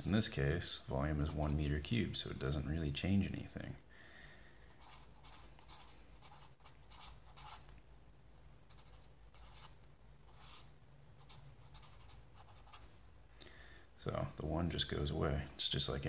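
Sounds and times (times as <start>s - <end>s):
marker writing on paper: 4.8s - 7.7s, 8.7s - 12.8s.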